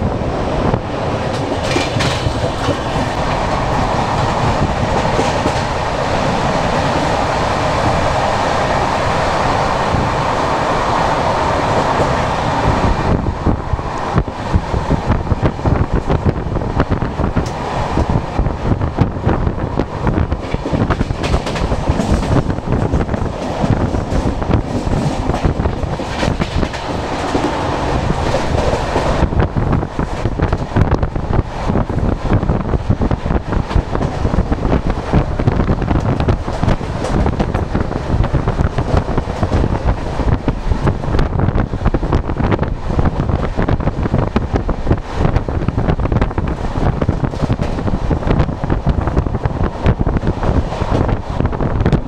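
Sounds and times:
train wheels rumbling on rail: 0.0s - 52.0s
wind hiss: 0.0s - 52.0s
rapid clicks over rail joints: 1.3s - 3.5s, 20.1s - 29.2s.

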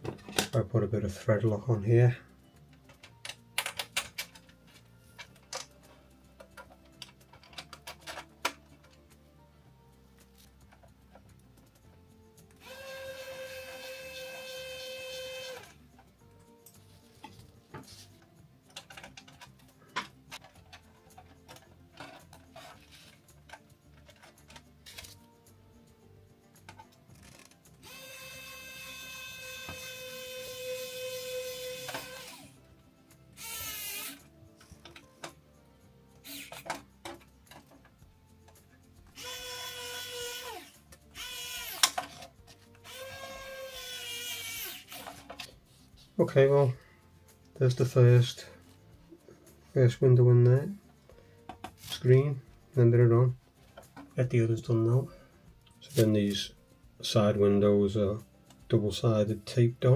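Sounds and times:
hard plastic parts clicking and knocking: 0.0s - 0.7s, 2.7s - 9.0s, 18.6s - 25.2s, 34.6s - 35.4s, 36.3s - 39.4s, 40.9s - 43.4s, 51.4s - 52.1s
electric screwdriver whining: 12.6s - 15.8s, 27.8s - 32.6s, 33.4s - 34.3s, 36.2s - 36.7s, 39.2s - 42.1s, 42.8s - 45.2s.

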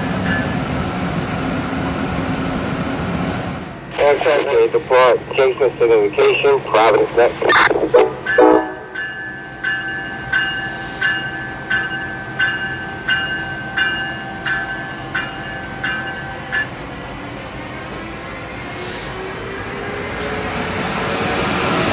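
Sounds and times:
electric locomotive bell ringing: 0.0s - 0.7s, 8.2s - 17.0s.

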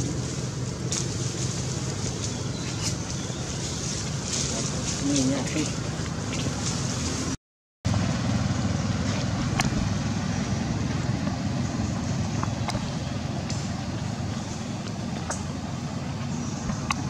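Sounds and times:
low outdoor rumble: 0.0s - 17.0s.

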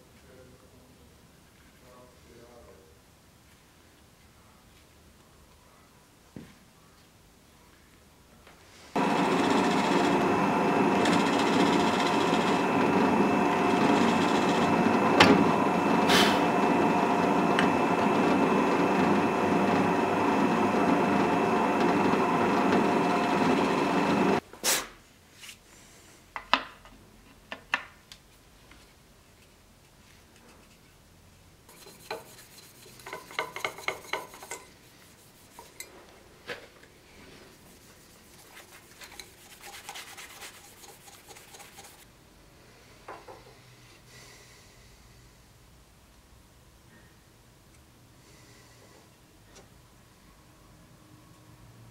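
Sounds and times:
drill press drilling into wood: 9.0s - 24.4s
scraping strokes: 31.7s - 36.0s, 37.1s - 42.0s.

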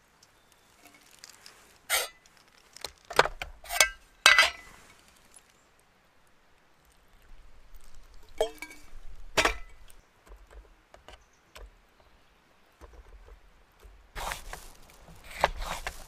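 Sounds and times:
metal mess tins clinking: 3.7s - 4.7s.

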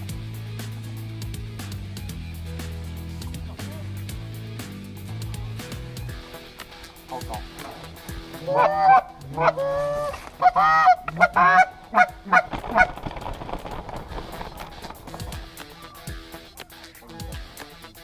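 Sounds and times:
goose honking: 7.0s - 13.2s.

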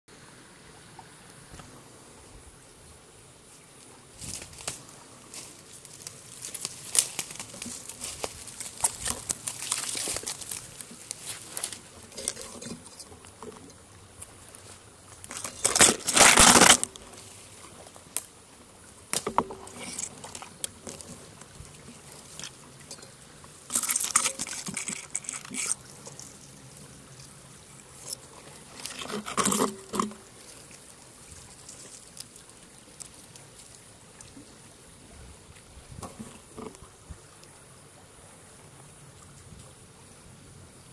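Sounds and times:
stream trickling: 0.1s - 40.9s.

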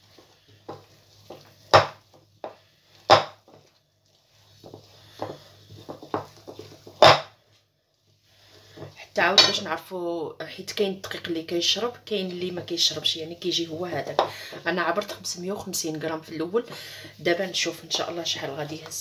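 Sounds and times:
whisk stirring batter: 0.0s - 7.0s.

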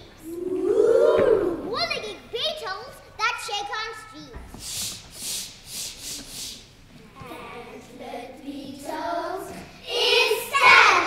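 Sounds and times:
soft rhythmic hissing: 3.9s - 11.0s
children singing: 7.2s - 11.0s.

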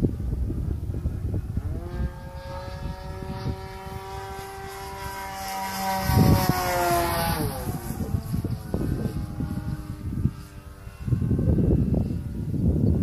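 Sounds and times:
model plane motor whine: 0.0s - 13.0s
wind rumbling on microphone: 0.0s - 13.0s.

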